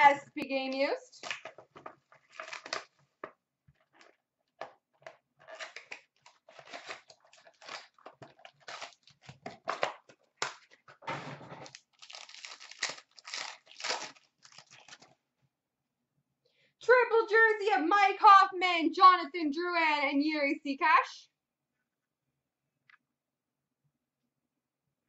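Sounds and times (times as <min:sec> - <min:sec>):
card pack wrappers tearing: 0:02.2 - 0:03.0, 0:05.4 - 0:10.7, 0:11.6 - 0:15.2.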